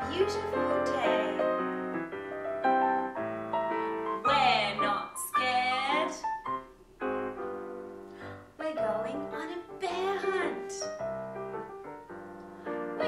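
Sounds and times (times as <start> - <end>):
woman speaking: 0.0 - 1.4, 4.3 - 6.3, 8.6 - 10.9
solo piano music: 0.0 - 13.0.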